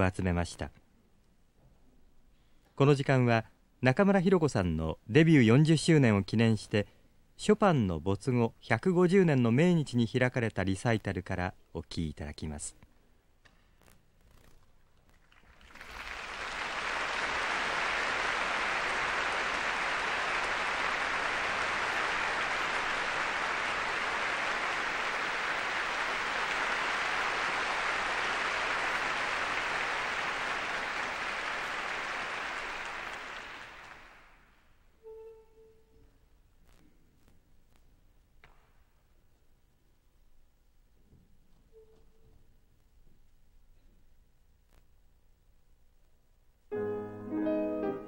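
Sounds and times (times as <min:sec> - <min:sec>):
audience applauding: 0:15.1 - 0:34.5.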